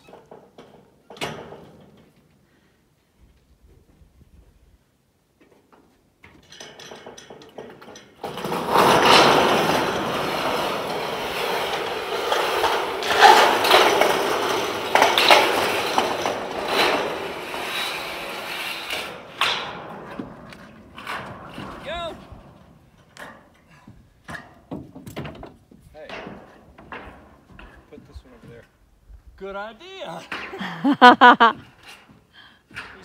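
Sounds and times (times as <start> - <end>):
metal panel scraping and rattling: 6.7 - 22.6.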